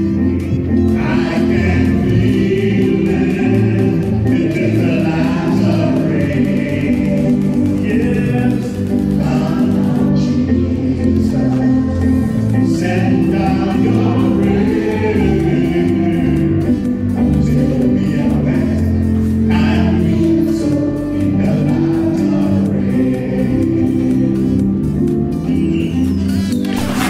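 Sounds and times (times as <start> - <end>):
choir singing gospel: 0.0 - 27.0
hands clapping: 0.4 - 10.3, 26.6 - 27.0.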